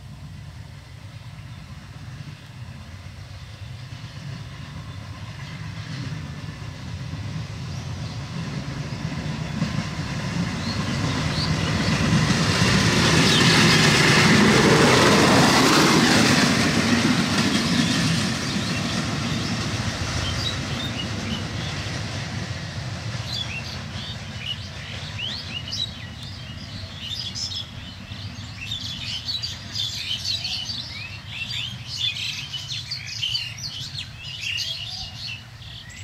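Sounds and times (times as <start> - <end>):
rail trolley motor and wheels: 0.0 - 36.0.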